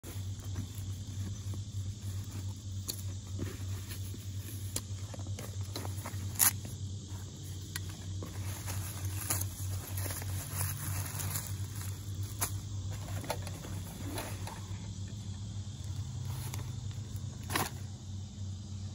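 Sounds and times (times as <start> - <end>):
fabric bag rustling: 0.0 - 14.7
low steady hum: 0.0 - 18.9.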